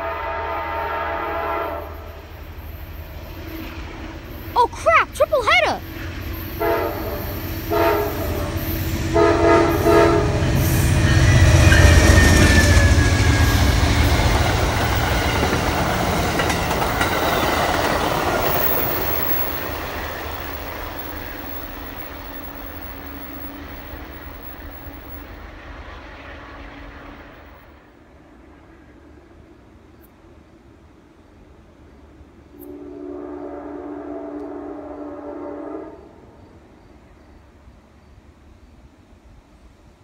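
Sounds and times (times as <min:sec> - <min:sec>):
train horn blasts: 0:00.0 - 0:02.2, 0:06.6 - 0:10.7, 0:32.6 - 0:36.4
diesel locomotive engines passing: 0:00.0 - 0:04.5, 0:05.8 - 0:40.0
train wheels clickety-clack: 0:10.2 - 0:25.4.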